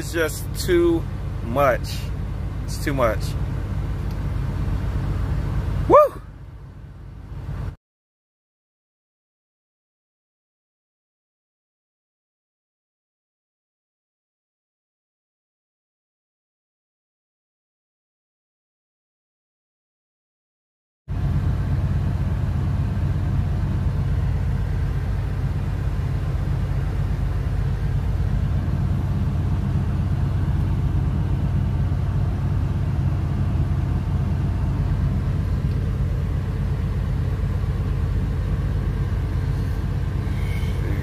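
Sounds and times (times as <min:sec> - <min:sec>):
diesel truck engine rumbling: 0:00.0 - 0:07.8, 0:21.1 - 0:41.0.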